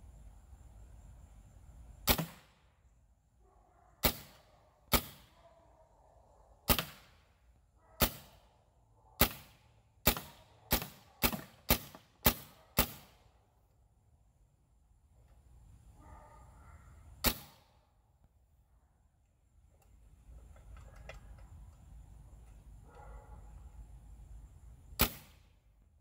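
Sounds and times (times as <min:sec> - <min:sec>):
air rifle shots: 0:02.0 - 0:02.6, 0:04.0 - 0:05.3, 0:06.7 - 0:07.2, 0:08.0 - 0:08.4, 0:09.2 - 0:13.2, 0:17.2 - 0:17.8, 0:25.0 - 0:25.6.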